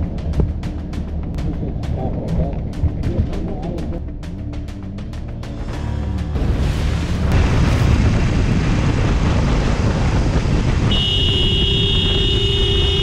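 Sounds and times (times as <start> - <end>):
explosion blast: 5.6 - 11.4
motorcycle riding in traffic: 9.0 - 13.0.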